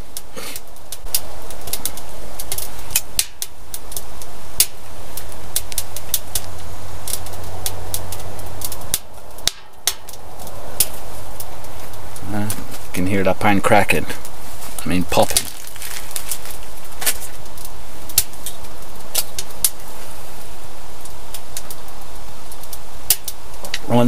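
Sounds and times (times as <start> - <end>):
fire rushing: 0.0 - 24.0
firewood crackling and popping: 0.0 - 24.0.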